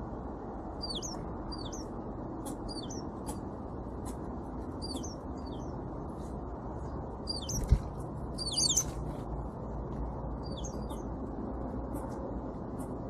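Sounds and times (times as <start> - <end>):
low background rumble: 0.0 - 13.0
songbirds twittering: 0.7 - 6.0, 6.8 - 9.3, 10.3 - 11.2.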